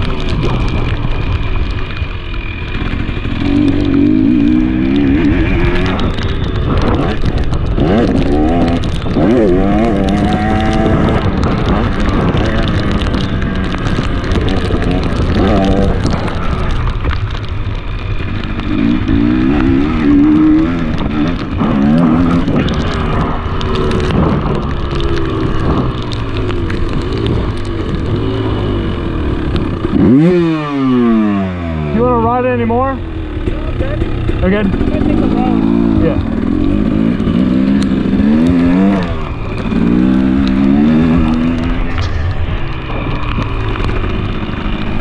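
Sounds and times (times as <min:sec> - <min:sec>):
wind on microphone: 0:00.0 - 0:32.0
dirt bike engine revving: 0:00.0 - 0:45.0.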